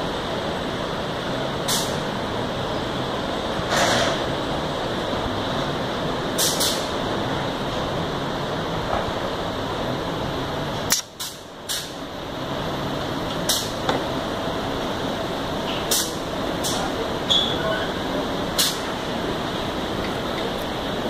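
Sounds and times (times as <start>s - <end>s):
factory machinery running: 0.0s - 21.0s.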